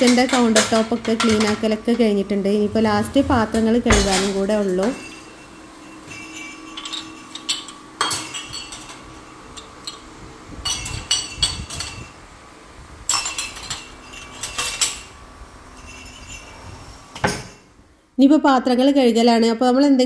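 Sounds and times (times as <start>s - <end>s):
cups clinking in wire basket: 0.0s - 2.0s, 2.8s - 12.2s, 13.1s - 17.7s.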